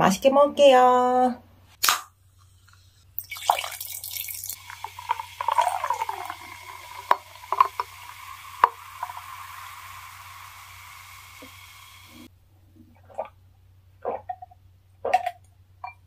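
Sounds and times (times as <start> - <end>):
carbonation fizzing and crackling: 3.2 - 12.3
cola pouring over ice: 3.2 - 12.3.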